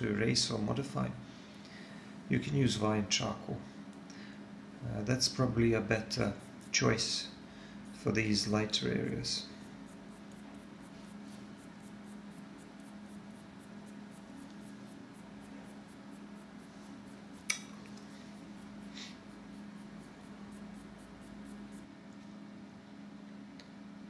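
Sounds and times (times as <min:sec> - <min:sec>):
paper stump rubbing on paper: 0:09.7 - 0:17.3
sharp click: 0:17.4 - 0:18.0.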